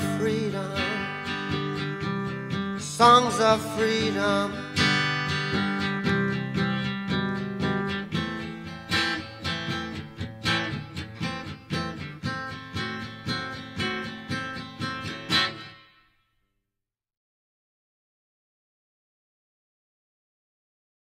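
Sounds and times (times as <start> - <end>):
acoustic guitar strumming: 0.0 - 16.2.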